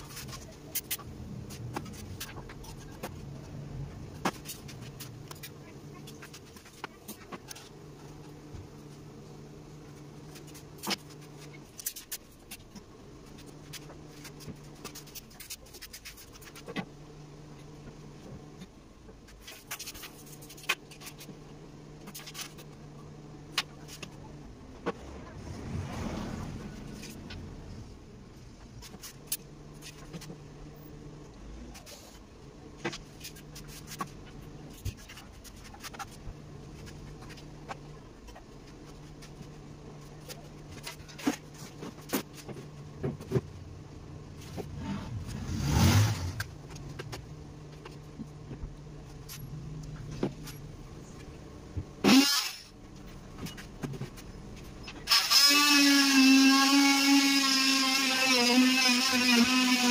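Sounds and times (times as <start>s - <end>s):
electric power tool whining: 55.1s - 59.9s.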